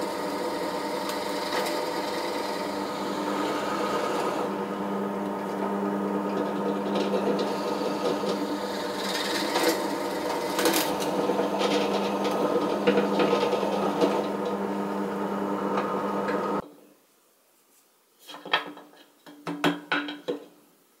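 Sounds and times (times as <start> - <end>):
drill bit cutting wood: 0.0 - 4.5, 6.3 - 14.6
drill press motor humming: 0.0 - 16.6.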